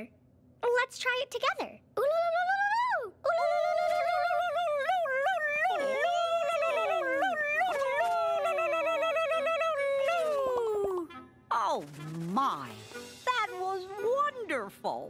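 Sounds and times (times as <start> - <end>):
cartoon voices yodelling turkey call: 2.0 - 11.0.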